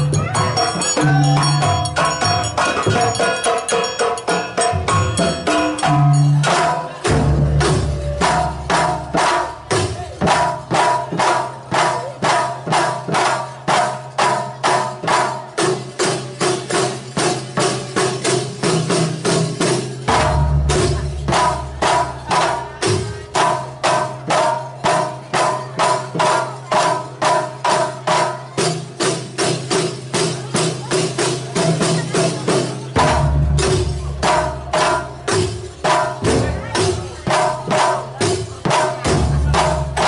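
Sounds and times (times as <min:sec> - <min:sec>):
sustained ringing tones: 0:00.0 - 0:06.3
frame and barrel drums beating: 0:00.0 - 0:40.0.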